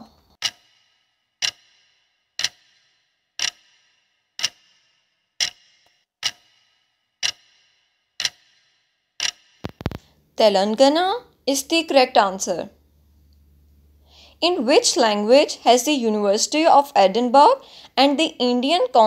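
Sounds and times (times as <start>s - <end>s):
clock ticking: 0.4s - 10.1s.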